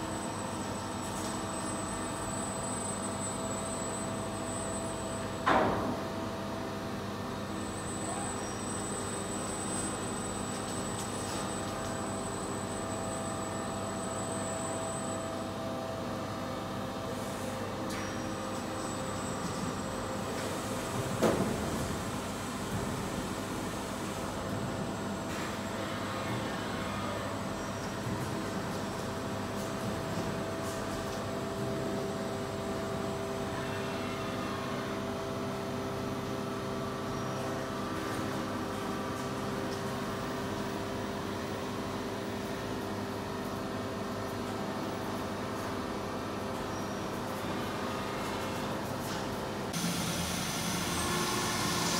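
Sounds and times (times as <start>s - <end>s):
machine hum with steady tones: 0.0s - 51.9s
industrial machinery humming: 47.8s - 51.9s.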